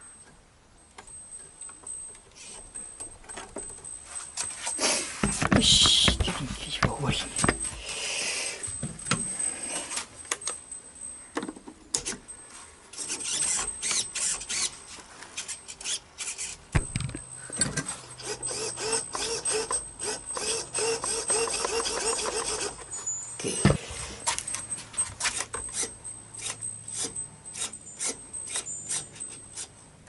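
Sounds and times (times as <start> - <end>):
handling clicks and knocks: 5.2 - 7.8, 16.7 - 18.0
servos whirring: 12.9 - 14.8, 15.4 - 17.1, 18.2 - 29.7.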